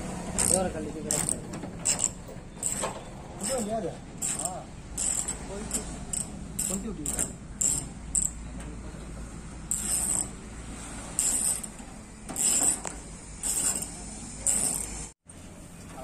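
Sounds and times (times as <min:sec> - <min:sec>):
hand tool mechanical clicking: 0:00.4 - 0:03.6, 0:04.2 - 0:08.4.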